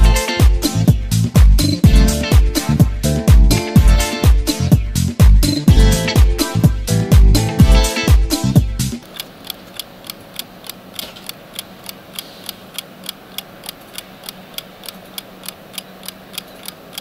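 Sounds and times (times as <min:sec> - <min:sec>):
alarm clock ticking: 0:09.0 - 0:17.0.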